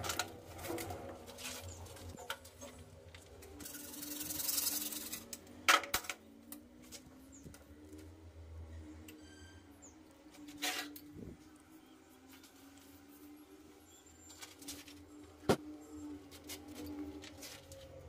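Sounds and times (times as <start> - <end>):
plastic pipe rubbing and scraping: 0.0 - 6.0.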